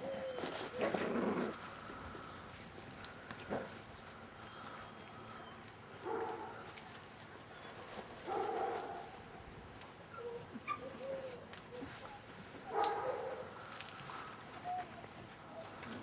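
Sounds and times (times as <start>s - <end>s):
puppies whimpering and yipping: 10.0s - 12.2s.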